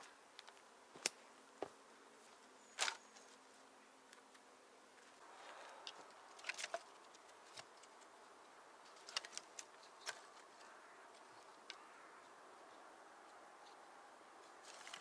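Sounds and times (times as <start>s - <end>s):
sharp clicks and crackles: 8.8s - 12.3s.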